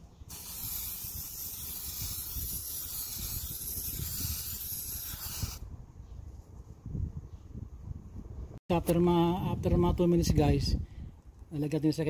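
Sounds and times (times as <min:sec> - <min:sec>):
aerosol can spraying hiss: 0:00.3 - 0:05.6.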